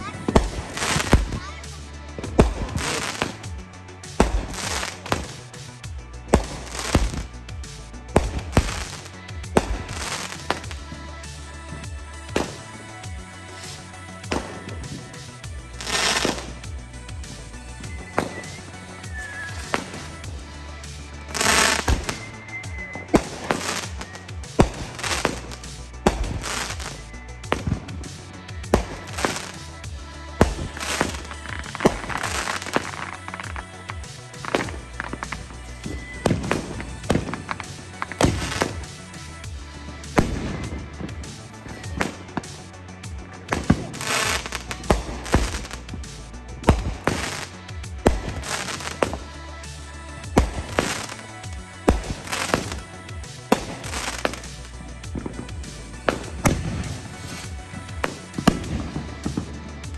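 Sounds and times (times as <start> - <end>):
fireworks bangs: 0.0 - 59.9
fireworks hissing and crackling: 0.0 - 59.9.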